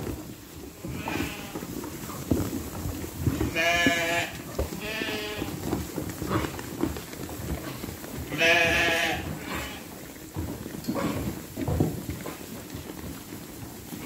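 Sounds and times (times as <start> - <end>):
hay rustling and clicking: 0.0 - 14.0
sheep bleating: 0.8 - 1.6, 3.5 - 5.6, 8.3 - 9.9.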